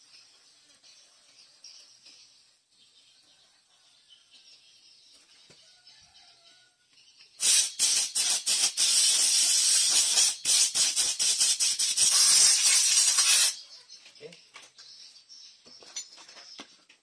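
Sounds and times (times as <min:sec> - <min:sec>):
compressed air blow gun hissing: 0:07.4 - 0:13.6.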